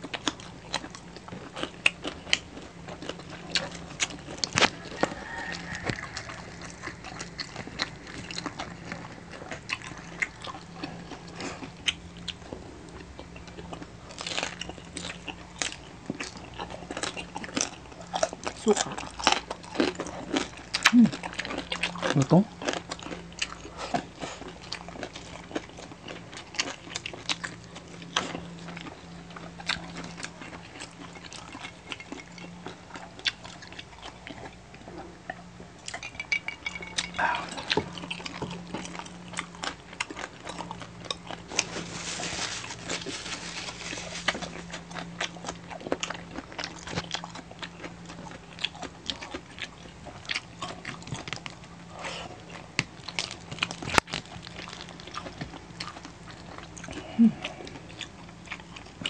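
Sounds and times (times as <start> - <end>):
crispy food crunching: 0.0 - 59.0
faint low hum: 0.0 - 59.0
people chewing and lip smacking: 0.0 - 59.0.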